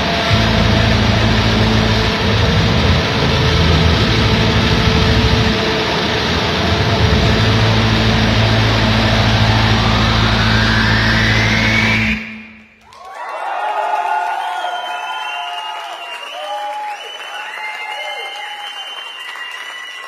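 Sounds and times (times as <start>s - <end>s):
distorted guitar noise: 0.0s - 12.8s
low bass notes: 0.0s - 12.8s
rising whine: 0.0s - 12.8s.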